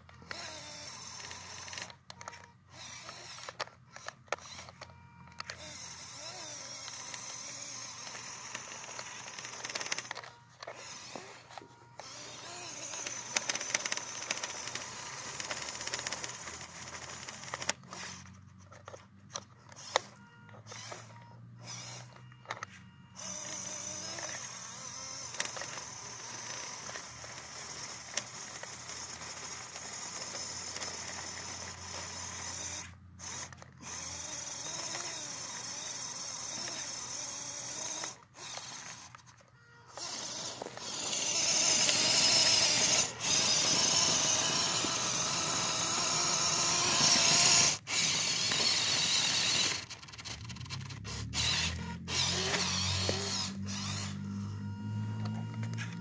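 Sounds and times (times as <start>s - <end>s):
electric motor and gears whining: 0.0s - 56.0s
wheels churning snow: 40.0s - 50.9s.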